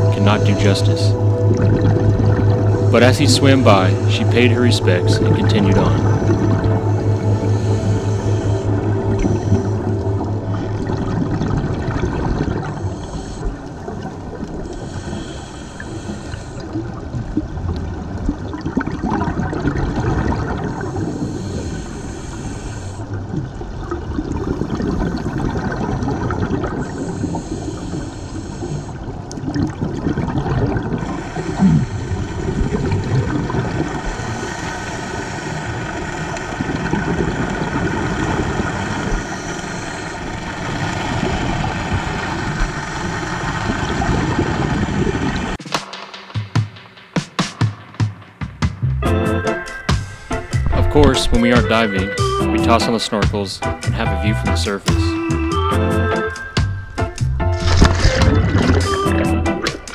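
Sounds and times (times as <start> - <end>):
muffled underwater rumble: 0.0 - 45.6, 50.0 - 55.2, 56.7 - 59.9
bubbling from exhaled breath: 23.1 - 34.6.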